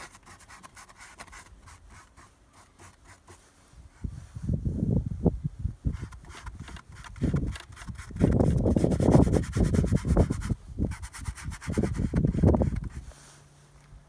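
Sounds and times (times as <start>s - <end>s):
paintbrush scrubbing on canvas: 0.0s - 3.6s, 5.9s - 13.5s.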